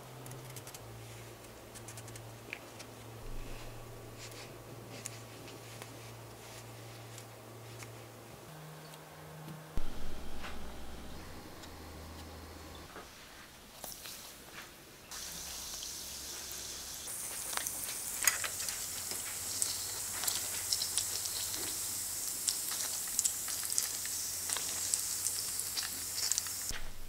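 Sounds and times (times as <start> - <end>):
dough deep-frying in oil: 13.7 - 26.7.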